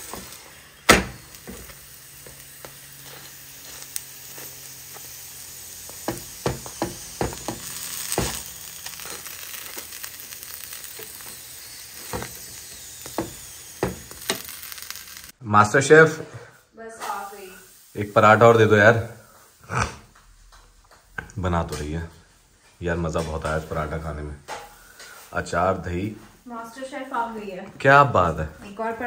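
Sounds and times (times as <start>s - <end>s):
flatbread sizzling on a griddle: 0.0s - 29.0s.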